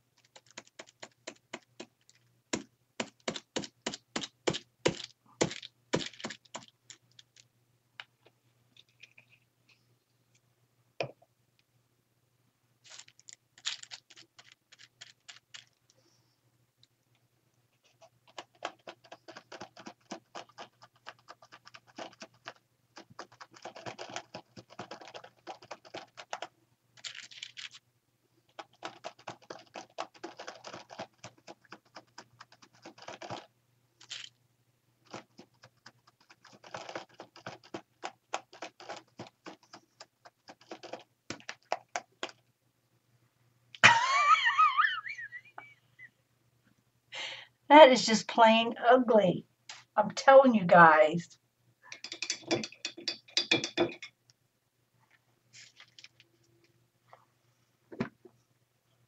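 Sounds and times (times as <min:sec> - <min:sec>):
dabber tapping paper: 0:00.2 - 0:06.7, 0:18.3 - 0:27.3, 0:28.5 - 0:33.5, 0:35.0 - 0:42.4.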